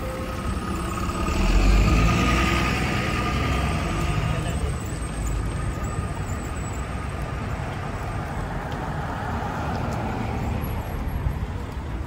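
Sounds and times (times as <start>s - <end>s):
cars driving past: 0.0s - 12.0s
passing vehicle: 0.0s - 12.0s.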